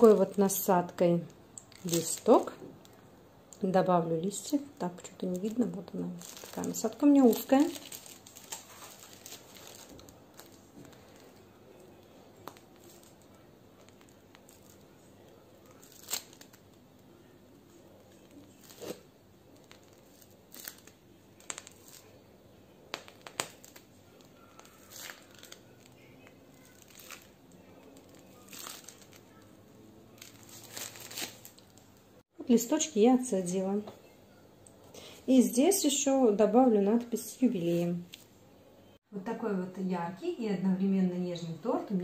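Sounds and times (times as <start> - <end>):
piping bag crinkling: 0.0 - 22.2, 22.9 - 32.0.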